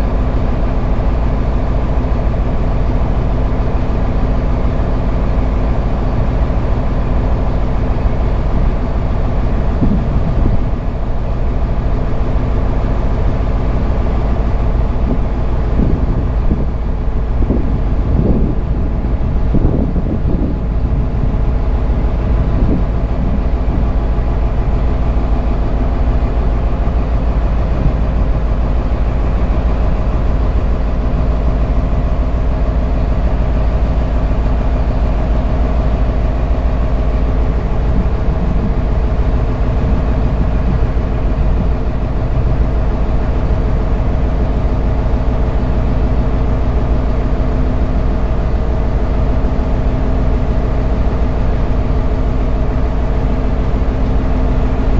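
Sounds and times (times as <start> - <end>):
boat engine humming: 0.0 - 54.9
wind: 0.0 - 54.9
water noise: 8.0 - 44.9.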